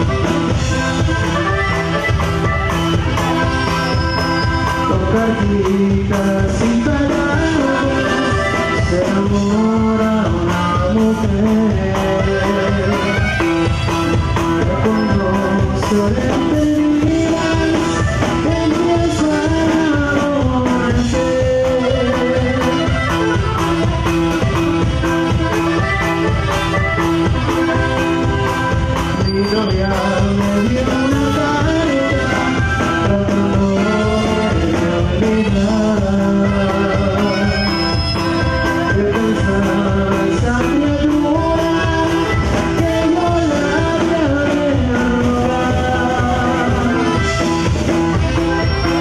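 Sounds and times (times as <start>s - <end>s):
acoustic guitar: 0.0s - 49.0s
button accordion: 0.0s - 49.0s
drum kit beat: 0.0s - 49.0s
electric bass: 0.0s - 49.0s
live band playing dance music: 0.0s - 49.0s
saxophone: 21.6s - 39.0s.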